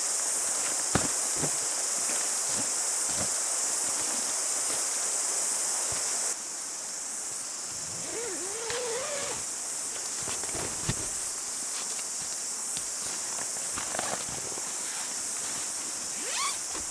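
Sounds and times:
high-pitched insect chorus: 0.0 - 16.9
sleeping pad taps and rustles: 0.6 - 4.9, 10.0 - 14.8.

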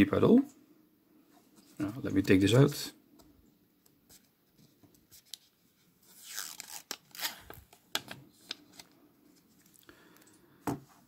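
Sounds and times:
plastic film rustling and crackling: 5.0 - 9.8.

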